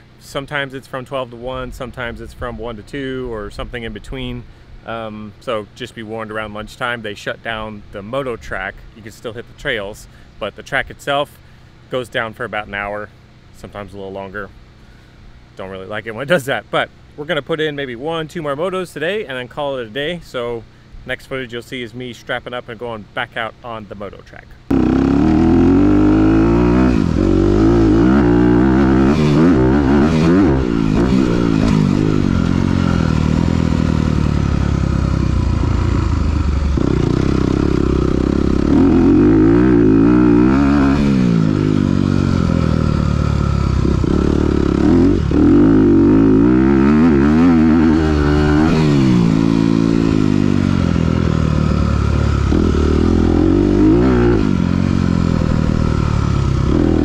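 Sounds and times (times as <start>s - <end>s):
motorcycle engine revving: 24.7s - 57.0s.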